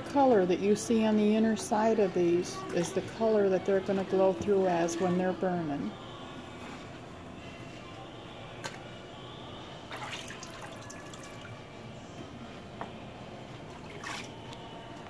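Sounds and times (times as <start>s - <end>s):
liquid dripping and splashing: 9.9s - 11.6s, 13.8s - 14.5s.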